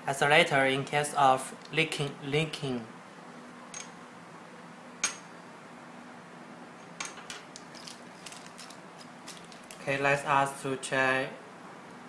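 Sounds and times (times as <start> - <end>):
small metal parts clicking: 7.5 - 9.9.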